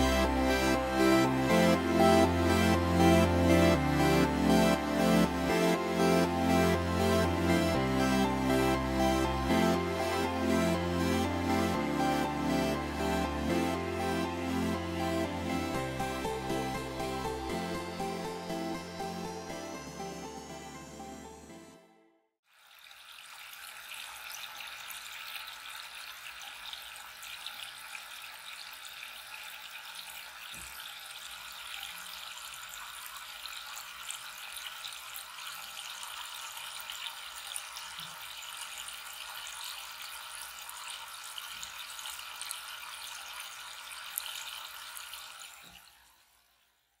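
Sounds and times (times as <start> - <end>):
fountain water splashing into basin: 22.5 - 46.7.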